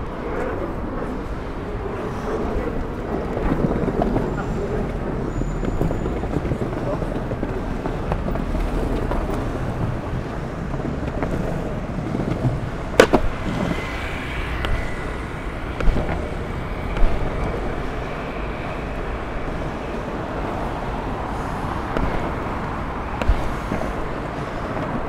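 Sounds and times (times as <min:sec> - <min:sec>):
longboard wheels rumbling on pavement: 0:00.0 - 0:25.0
wind on microphone: 0:00.0 - 0:25.0
board clacking over joints: 0:05.6 - 0:25.0.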